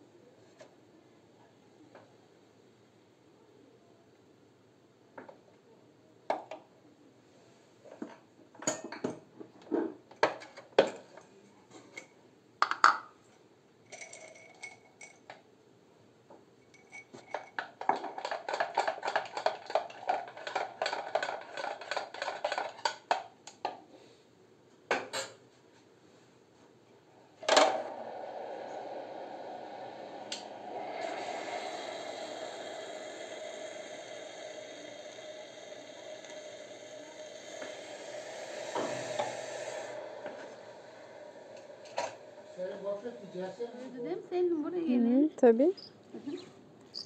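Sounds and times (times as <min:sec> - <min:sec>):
porcelain cups clinking: 0:13.9 - 0:15.3.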